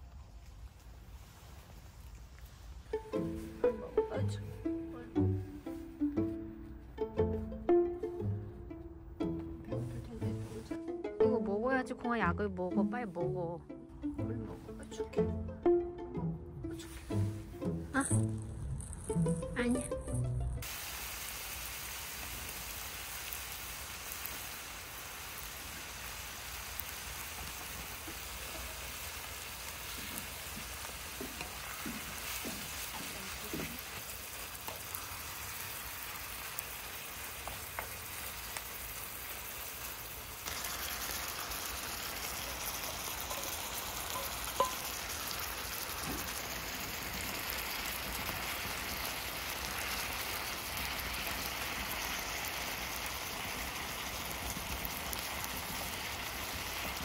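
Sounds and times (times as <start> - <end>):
food sizzling on a griddle: 0.0 - 4.1, 20.6 - 57.0.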